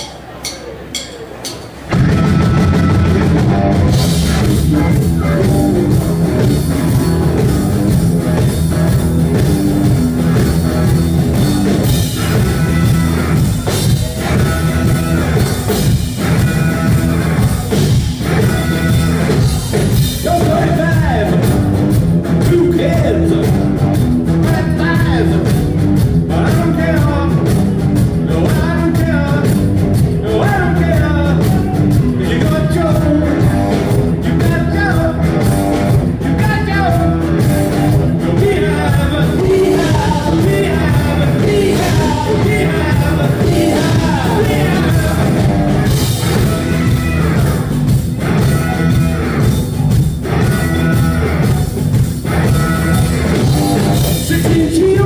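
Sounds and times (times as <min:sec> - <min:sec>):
live rock band playing: 0:00.0 - 0:55.0
person singing: 0:36.3 - 0:46.0, 0:53.5 - 0:55.0.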